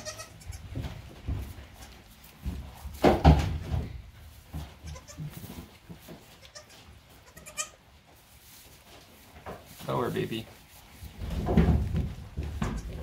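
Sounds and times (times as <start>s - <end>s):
goat bleating: 0.0s - 0.8s, 4.8s - 5.5s, 6.2s - 7.8s, 12.6s - 13.0s.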